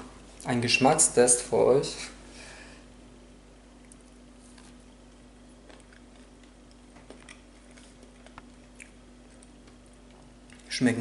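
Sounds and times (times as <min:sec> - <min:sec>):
steady low hum: 0:00.0 - 0:11.0
faint chewing: 0:03.7 - 0:10.8.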